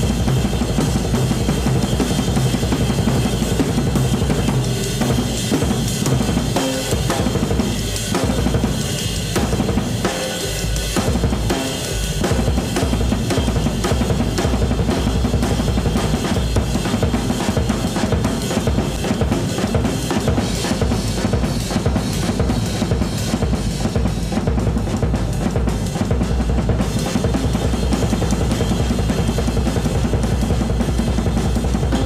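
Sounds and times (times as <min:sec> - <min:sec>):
cymbal wash: 0:00.0 - 0:32.0
drum solo: 0:00.0 - 0:32.0
bass drum beats: 0:12.2 - 0:32.0.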